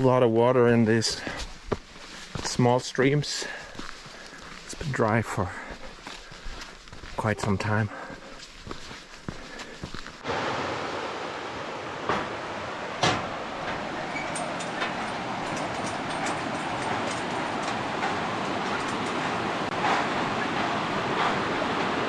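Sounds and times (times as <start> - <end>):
footsteps on steel mesh: 1.0 - 10.2, 13.2 - 21.7
stream rapids rushing: 10.2 - 22.0.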